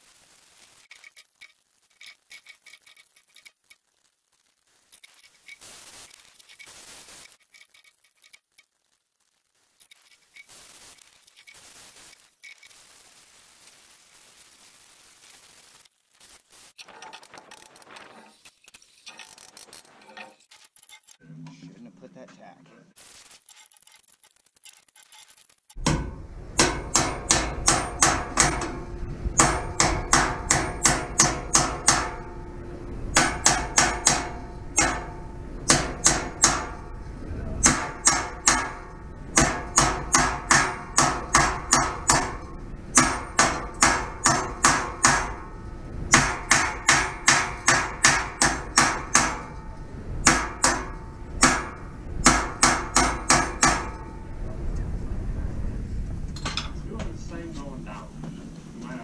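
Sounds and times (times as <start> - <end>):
hammer striking steel: 25.8 - 37.0, 37.6 - 54.3.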